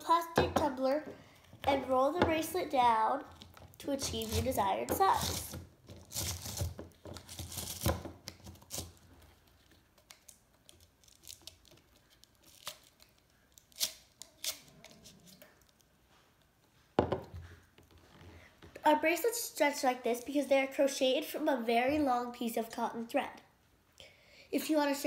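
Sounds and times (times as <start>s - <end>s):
plastic crinkling and rubbing: 3.3s - 15.9s.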